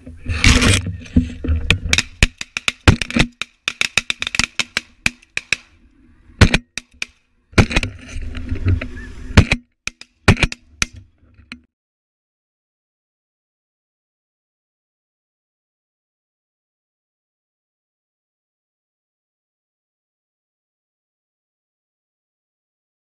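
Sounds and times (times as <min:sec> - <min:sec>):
sharp loud cracks: 0:01.7 - 0:05.8
wind rumbling on microphone: 0:07.4 - 0:09.5
geese yelping: 0:08.8 - 0:09.4.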